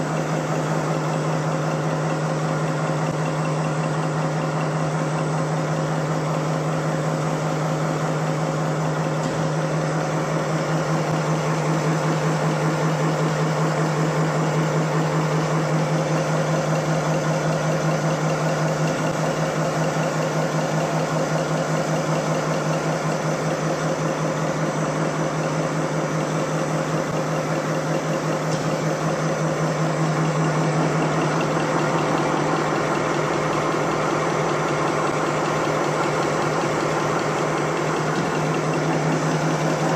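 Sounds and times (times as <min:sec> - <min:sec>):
fast mechanical clatter: 0:00.0 - 0:39.9
machine humming: 0:26.1 - 0:39.9.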